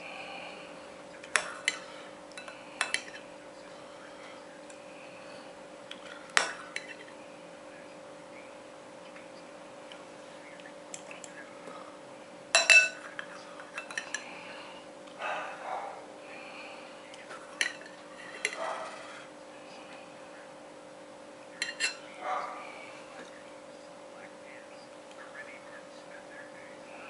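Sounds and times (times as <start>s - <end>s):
faint steady hum: 0.0s - 27.0s
cutlery clinking on plate: 2.4s - 3.3s, 6.0s - 7.1s, 12.6s - 14.3s, 17.6s - 19.0s, 21.6s - 22.0s.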